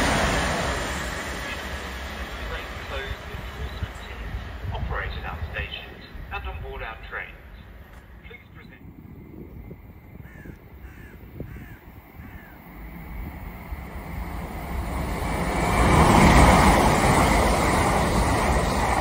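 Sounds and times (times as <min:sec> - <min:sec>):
train passing at speed: 0:00.0 - 0:19.0
bird calling: 0:10.2 - 0:12.7.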